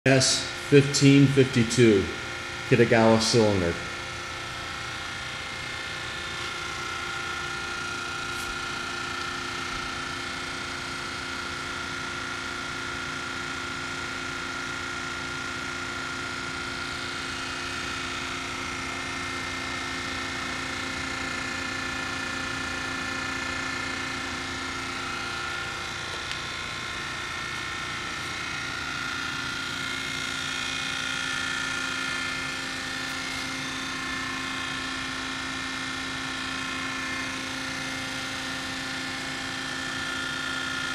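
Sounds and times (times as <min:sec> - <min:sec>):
hydraulic machine whine: 0:13.8 - 0:40.9.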